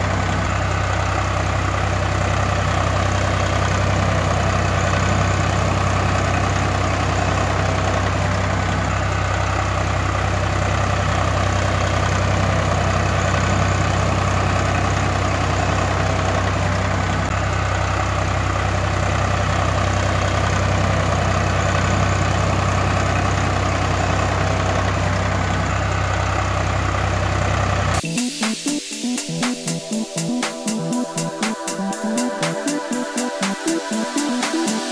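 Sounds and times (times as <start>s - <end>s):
tractor engine idling: 0.0s - 28.0s, 29.6s - 34.9s.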